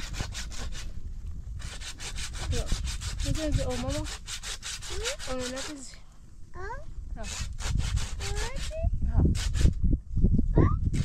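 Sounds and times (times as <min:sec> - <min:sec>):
hand saw cutting wood: 0:00.0 - 0:01.0, 0:01.6 - 0:06.0, 0:07.2 - 0:09.8.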